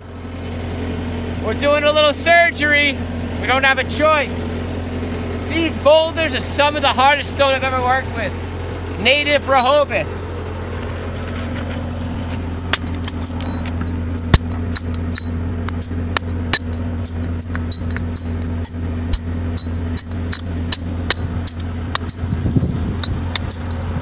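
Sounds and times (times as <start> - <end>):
machinery engine drone: 0.0 - 24.0
hammer on chisel clinks: 12.6 - 22.3.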